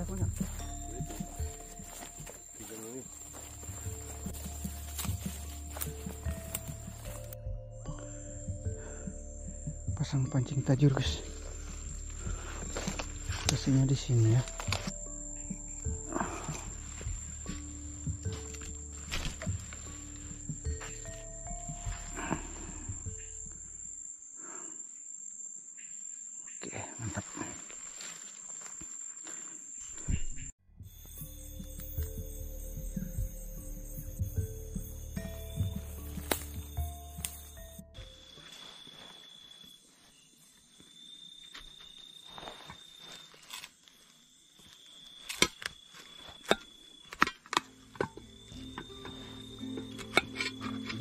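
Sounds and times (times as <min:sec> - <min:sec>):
insects chirring: 0:00.0 - 0:51.0
clicks and knocks of handled gear: 0:12.6 - 0:15.0, 0:45.2 - 0:49.2.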